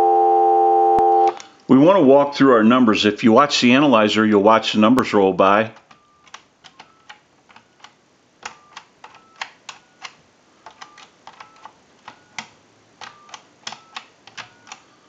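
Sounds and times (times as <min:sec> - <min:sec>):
phone keypad clicks: 0:05.8 - 0:14.9.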